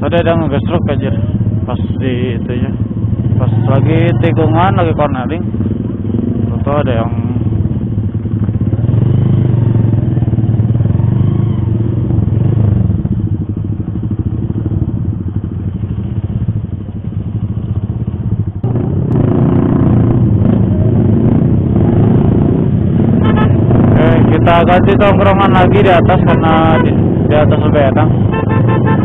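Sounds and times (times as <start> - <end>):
motorcycle engine idling: 0.0 - 18.9.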